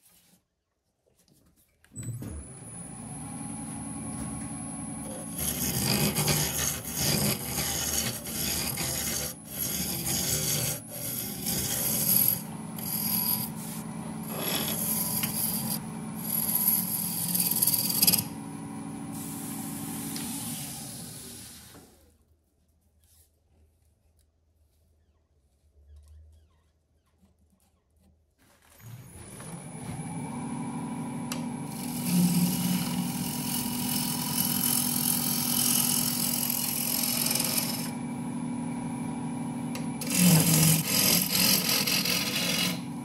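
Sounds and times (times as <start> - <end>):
wood lathe motor hum and whine: 2.3 - 21.4, 28.9 - 43.0
gouge cutting spinning wood: 4.0 - 21.4, 29.4 - 43.0.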